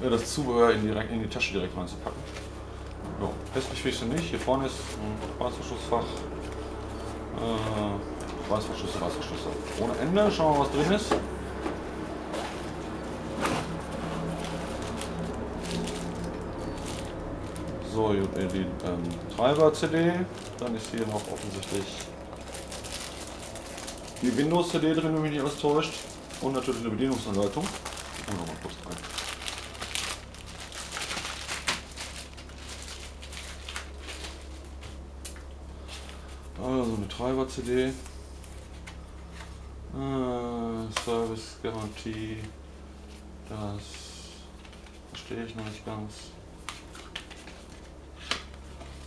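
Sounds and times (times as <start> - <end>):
steady low hum: 0.0 - 49.0
plastic sleeve crinkling: 12.3 - 39.5, 46.6 - 49.0.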